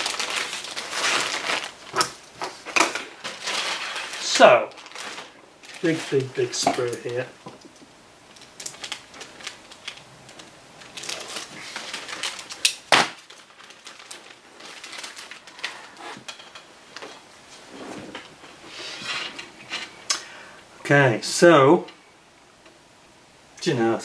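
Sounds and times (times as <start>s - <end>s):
packaging crinkling: 0.0s - 17.3s.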